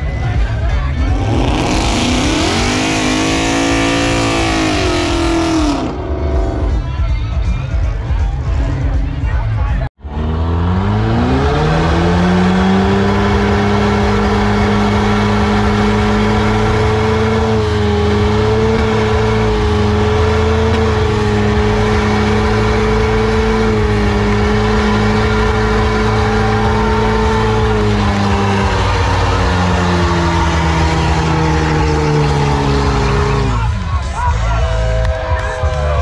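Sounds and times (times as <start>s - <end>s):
car engine revving: 0.0s - 7.1s, 10.0s - 35.3s.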